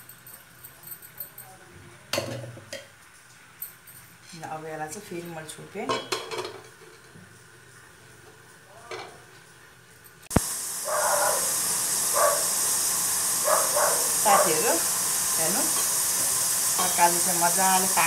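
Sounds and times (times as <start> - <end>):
vegetables sizzling under lid: 4.5 - 18.0.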